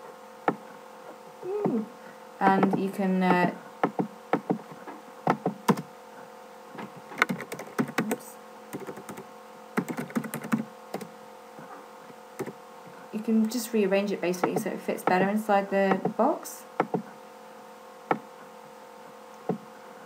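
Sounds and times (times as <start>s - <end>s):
typing on computer keyboard: 7.2s - 8.2s, 8.8s - 9.2s, 9.8s - 11.1s.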